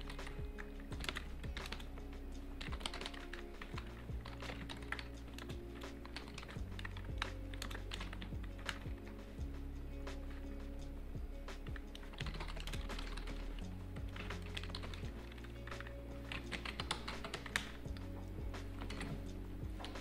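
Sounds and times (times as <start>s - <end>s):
typing on computer keyboard: 0.0s - 1.9s, 2.6s - 9.0s, 12.0s - 18.0s, 18.8s - 20.0s.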